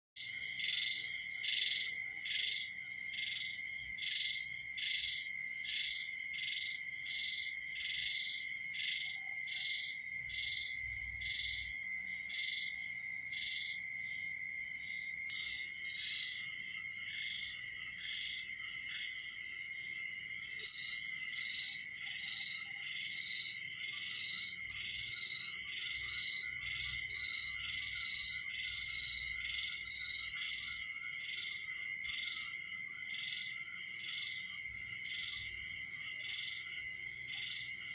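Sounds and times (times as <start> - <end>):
rhythmic chirping call: 15.3 - 34.5.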